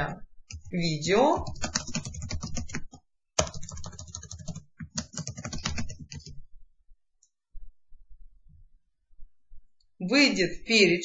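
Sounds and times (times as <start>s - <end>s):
computer keyboard typing: 0.5s - 6.4s.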